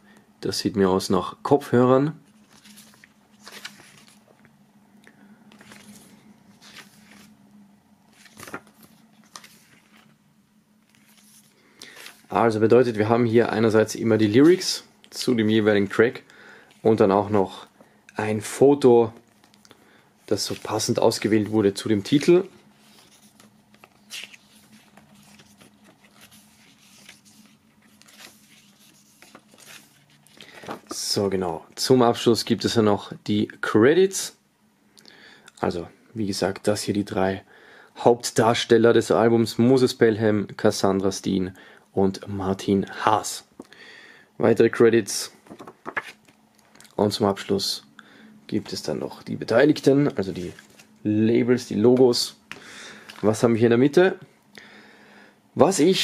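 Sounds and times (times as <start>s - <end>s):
paper pages rustling: 2.2s - 4.5s, 5.5s - 7.4s, 8.1s - 10.2s, 10.8s - 12.6s, 20.3s - 31.2s, 45.4s - 47.5s, 50.0s - 51.1s, 51.8s - 53.4s.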